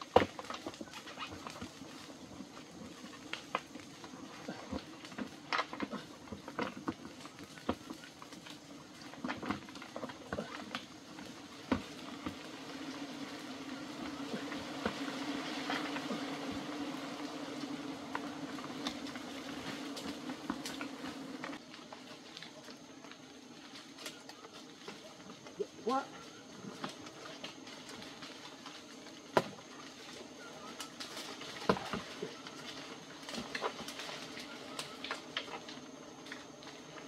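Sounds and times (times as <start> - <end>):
bamboo creaking and snapping: 0.0 - 37.0
low buzz of bees: 0.8 - 37.0.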